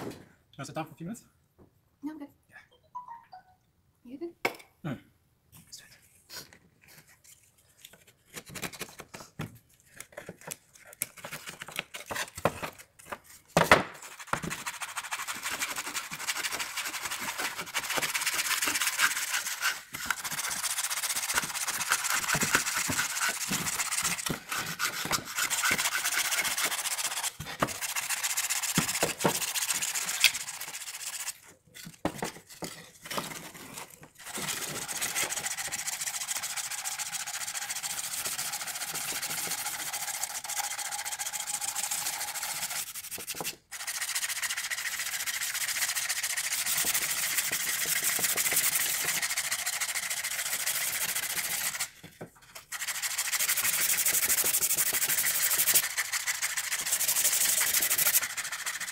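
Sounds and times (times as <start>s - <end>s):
sandpaper rubbing on wood: 14.0s - 31.4s, 34.2s - 51.9s, 52.7s - 58.9s.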